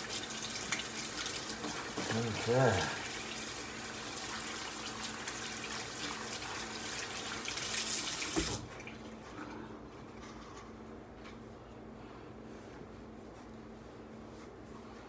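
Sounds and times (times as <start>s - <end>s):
faucet running water into sink: 0.0s - 8.9s.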